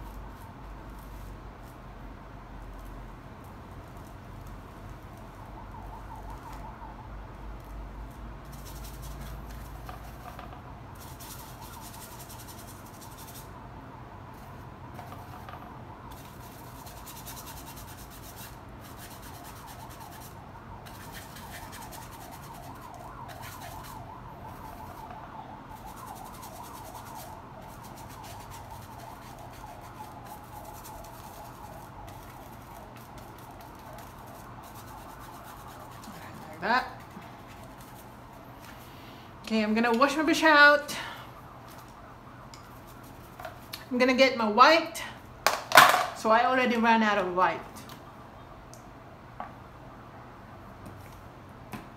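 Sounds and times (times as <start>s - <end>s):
paintbrush dabbing on canvas: 16.1s - 38.8s.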